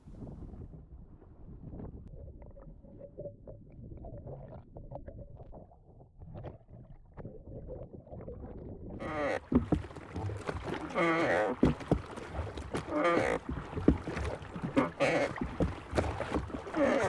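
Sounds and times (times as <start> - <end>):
oar churning water: 1.7 - 17.0
bubbles popping and clicking: 2.0 - 17.0
rush of water: 9.0 - 17.0.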